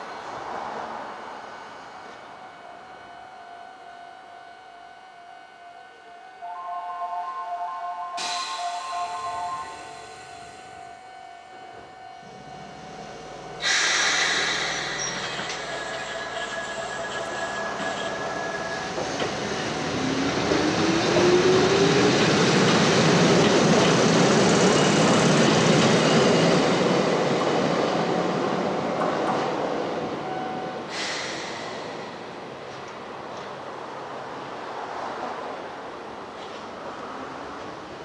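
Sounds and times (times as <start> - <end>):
electric train pulling away: 0.1 - 32.7
wheel and track noise: 13.6 - 27.5.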